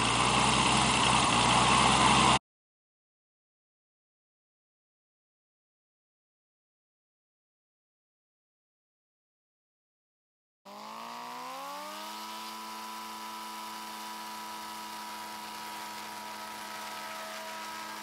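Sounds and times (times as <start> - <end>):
light aircraft engine and propeller: 0.0 - 2.4, 10.7 - 18.0.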